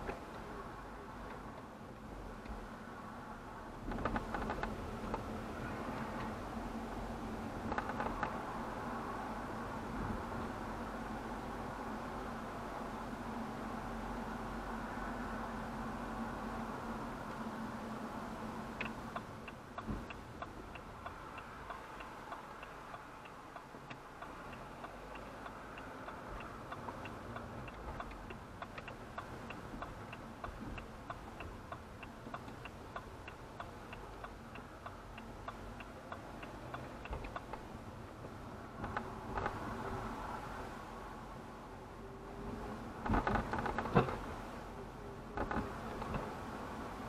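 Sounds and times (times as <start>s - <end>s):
engine and road hum: 0.0s - 47.0s
turn signal ticking: 3.9s - 40.8s.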